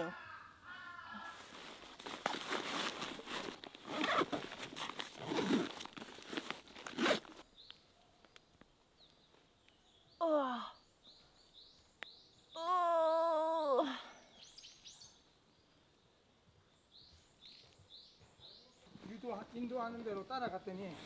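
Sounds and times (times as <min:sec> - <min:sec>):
rustling and crunching: 0:01.3 - 0:07.5.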